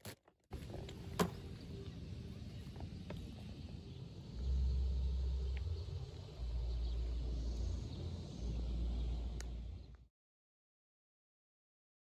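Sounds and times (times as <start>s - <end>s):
faint clicks: 9.3s - 10.0s.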